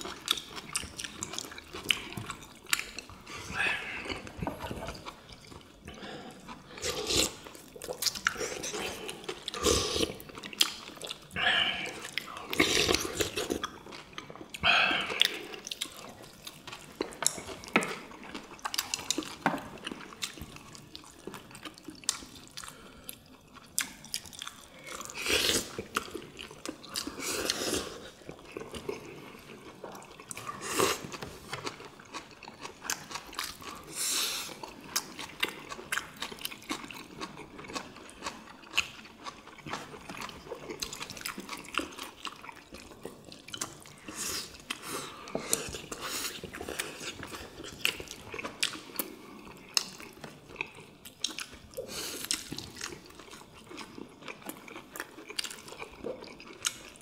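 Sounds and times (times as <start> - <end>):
people chewing and biting: 0.0 - 57.0.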